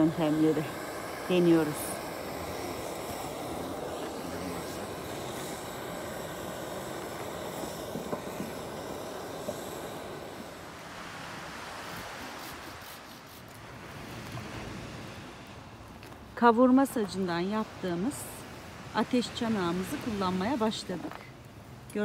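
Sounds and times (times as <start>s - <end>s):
wood fire crackling: 0.0s - 12.7s
butane torch hissing: 0.0s - 13.6s.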